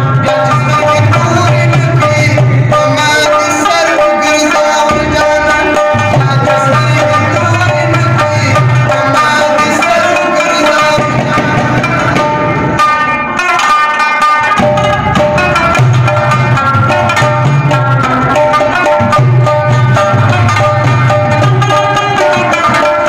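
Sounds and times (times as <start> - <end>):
man singing: 0.0 - 12.3
clay-pot drum rhythm: 0.0 - 23.0
plucked lute melody: 0.0 - 23.0.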